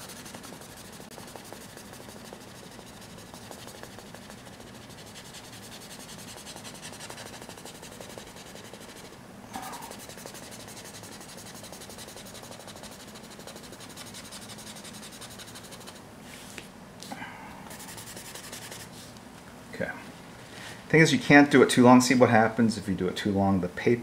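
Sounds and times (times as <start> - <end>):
tissue rubbing on paper: 0.0 - 16.7, 17.7 - 19.1.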